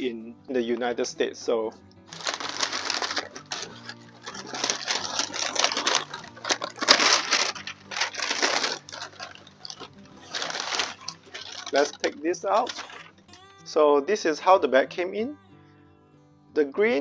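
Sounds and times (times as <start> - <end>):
packing paper crinkling: 2.1 - 13.2.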